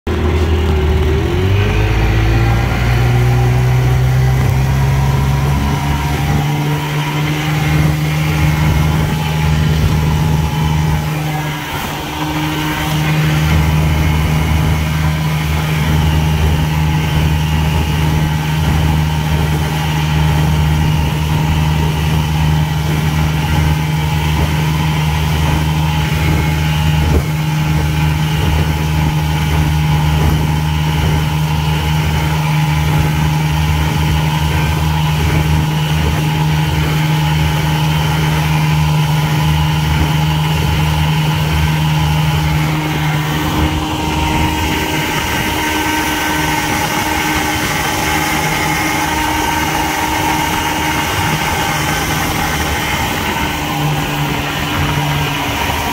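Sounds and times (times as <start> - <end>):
outboard motor running: 0.0 - 55.9.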